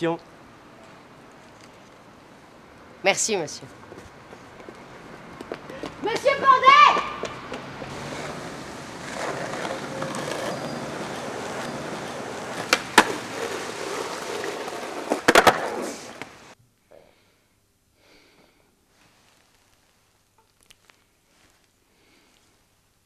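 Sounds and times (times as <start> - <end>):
street noise: 0.0 - 16.6
skateboard wheels rolling on concrete: 0.9 - 16.6
skateboard clacks: 5.4 - 16.4.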